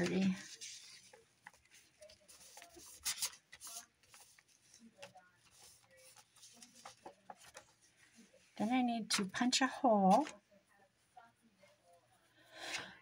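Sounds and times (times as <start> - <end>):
paper rubbing and rustling: 0.0 - 8.7
brushing strokes on paper: 0.4 - 8.6.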